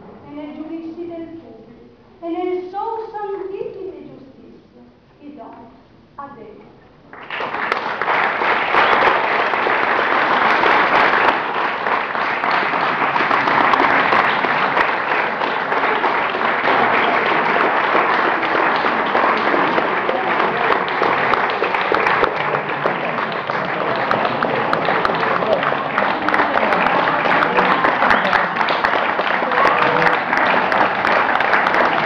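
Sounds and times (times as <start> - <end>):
audience applauding: 7.1 - 32.0.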